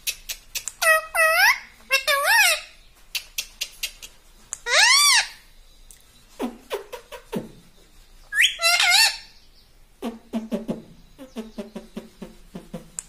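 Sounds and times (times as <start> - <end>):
parrot calling: 0.1 - 5.5, 8.3 - 9.4.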